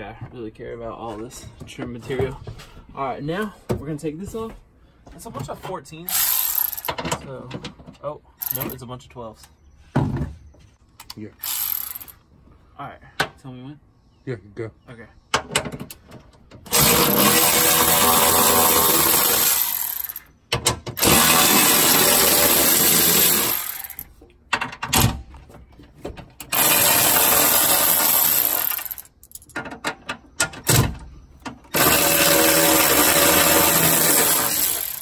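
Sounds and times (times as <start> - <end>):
cordless ratchet spinning bolts: 6.1 - 7.0, 8.4 - 8.8, 11.4 - 12.2, 16.7 - 20.3, 21.0 - 24.1, 26.5 - 29.6, 31.7 - 35.0.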